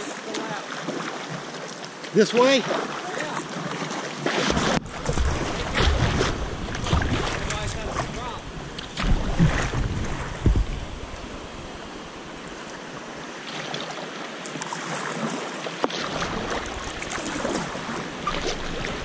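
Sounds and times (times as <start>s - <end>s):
creek water over rocks: 0.0s - 19.0s
paddle splashes: 0.0s - 19.0s
wind on microphone: 4.5s - 12.6s.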